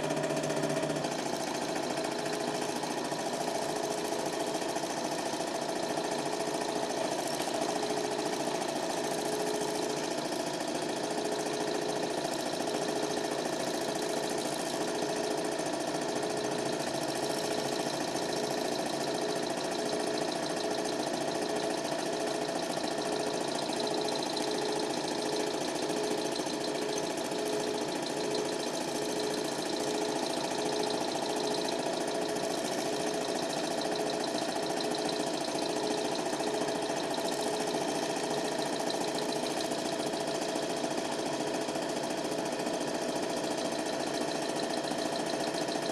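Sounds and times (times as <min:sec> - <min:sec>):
film projector whirring: 0:00.0 - 0:45.9.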